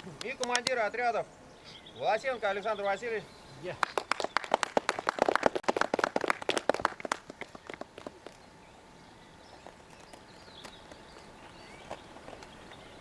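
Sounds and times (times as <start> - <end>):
people clapping: 3.8 - 8.4.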